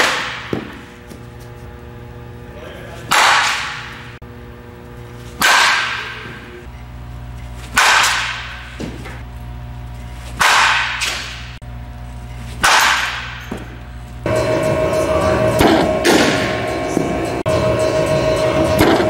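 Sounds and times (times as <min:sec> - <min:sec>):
bat striking softballs: 0:00.0 - 0:01.3, 0:03.0 - 0:04.2, 0:05.2 - 0:06.7, 0:07.5 - 0:09.3, 0:10.2 - 0:11.6, 0:12.5 - 0:13.9, 0:15.6 - 0:17.2
steady hum: 0:00.0 - 0:19.0.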